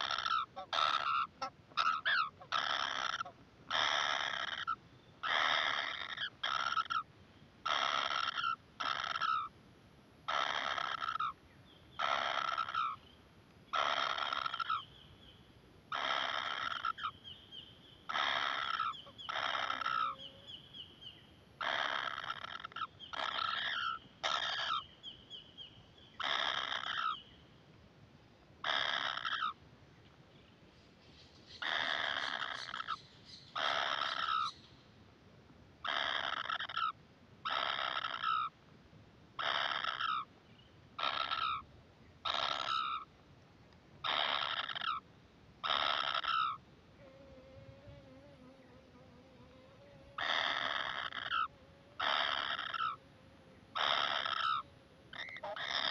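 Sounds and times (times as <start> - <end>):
nestlings rasping begging calls: 0.0 - 9.5, 10.3 - 13.1, 13.7 - 15.0, 15.9 - 17.4, 18.1 - 24.9, 26.1 - 27.2, 28.6 - 29.6, 31.1 - 34.7, 35.8 - 38.5, 39.4 - 40.3, 41.0 - 41.6, 42.3 - 43.1, 44.0 - 45.0, 45.6 - 46.6, 50.2 - 53.0, 53.7 - 55.9.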